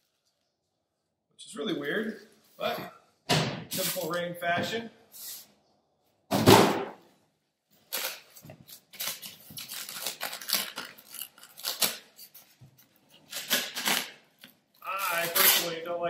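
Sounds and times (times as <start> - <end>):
foam packing crackling and rustling: 7.8 - 12.6.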